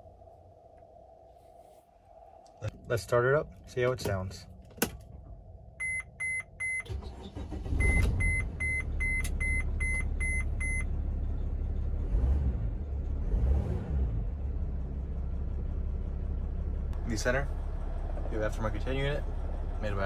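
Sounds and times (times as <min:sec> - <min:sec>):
diesel engine cranking and idling: 0:04.5 - 0:20.0
dashboard warning chime: 0:05.8 - 0:07.0, 0:07.6 - 0:10.8.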